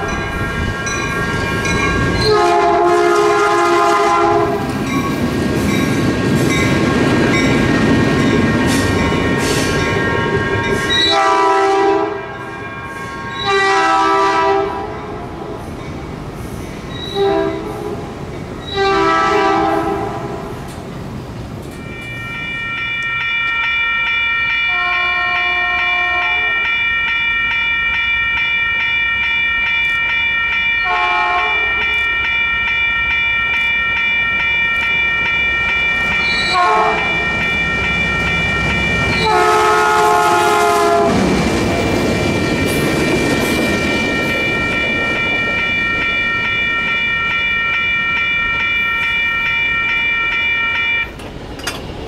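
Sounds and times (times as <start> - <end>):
train rumbling past: 0.0 - 52.0
train horn blasts: 2.2 - 4.7, 10.8 - 12.6, 13.3 - 15.2, 17.0 - 18.0, 18.7 - 20.6, 24.5 - 26.8, 30.8 - 32.1, 36.2 - 37.6, 39.1 - 41.2
high-pitched ringing tones: 21.8 - 39.4, 42.4 - 51.1.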